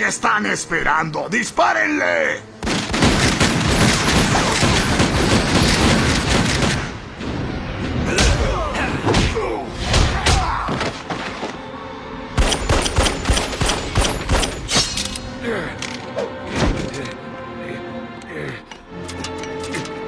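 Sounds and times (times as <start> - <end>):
dramatic orchestral music: 0.0 - 20.0
handgun and tommy-gun fire: 12.4 - 14.8.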